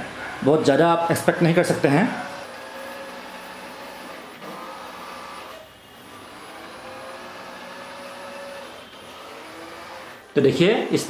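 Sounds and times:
robot vacuum whirring: 2.2s - 11.0s.

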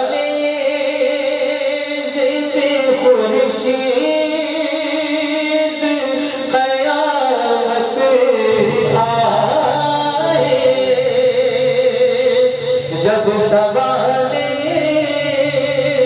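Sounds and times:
man singing into a microphone: 0.0s - 16.0s.

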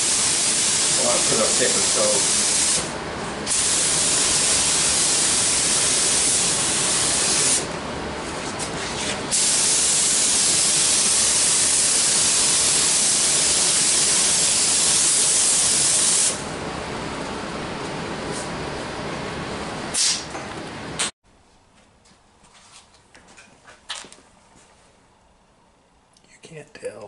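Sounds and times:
paint spray gun hissing: 0.0s - 2.9s, 3.5s - 7.7s, 9.3s - 16.4s.

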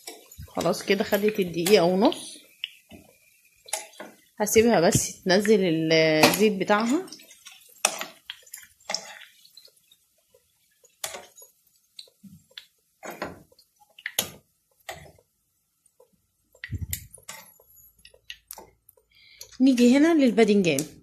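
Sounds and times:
metal tongs tapping a frying pan: 0.0s - 5.6s, 6.2s - 9.8s, 10.8s - 15.2s, 16.5s - 18.7s.

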